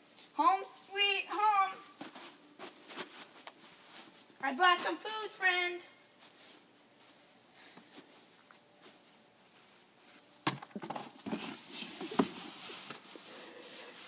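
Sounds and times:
cardboard box knocks and scuffs: 10.5s - 12.5s.

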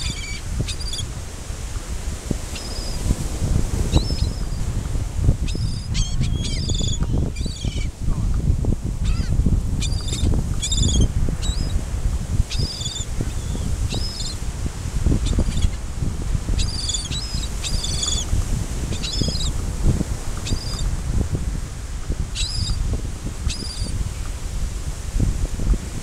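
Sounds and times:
gulls calling: 0.0s - 1.1s, 9.0s - 11.8s, 16.6s - 18.3s.

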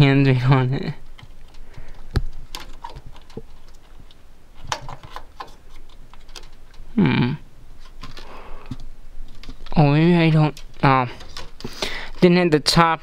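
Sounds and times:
clicks and taps inside computer case: 4.6s - 6.6s
man's short vocal sound: 7.0s - 7.4s.

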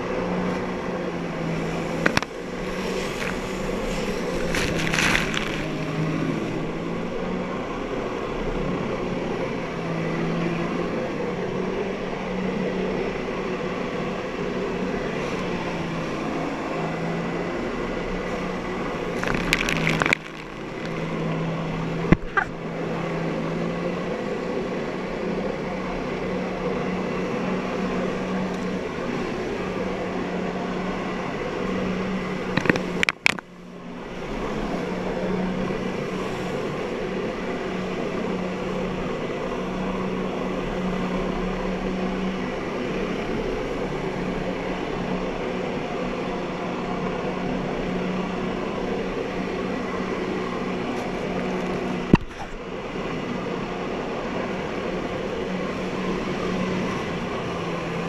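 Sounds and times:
jet ski engine running: 0.0s - 58.0s
sharp cracks: 19.2s - 21.1s.

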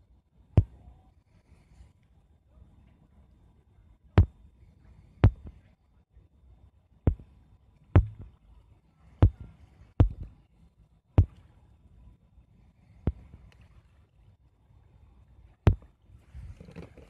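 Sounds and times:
fingertip taps on touchscreen: 5.2s - 5.6s, 8.0s - 8.3s.

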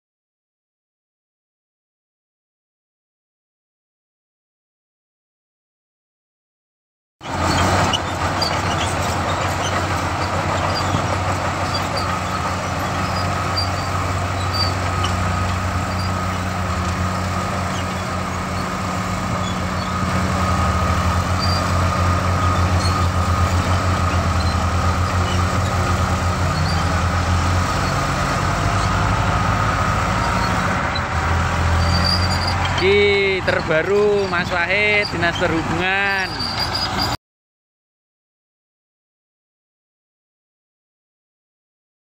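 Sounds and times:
bulldozer diesel engine running: 7.2s - 37.2s.

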